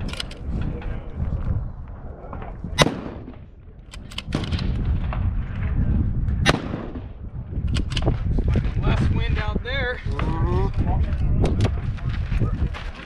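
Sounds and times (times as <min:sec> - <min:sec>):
wind rumble on microphone: 0:00.0 - 0:13.0
rifle shots: 0:02.8 - 0:04.8, 0:06.4 - 0:08.1.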